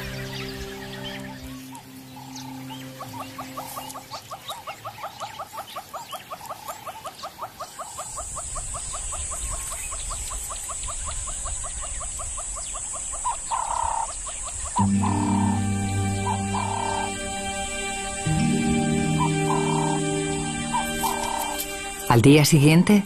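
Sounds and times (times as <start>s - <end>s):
high chirping animal calls: 0.0s - 22.1s
steady high hiss: 7.7s - 23.0s.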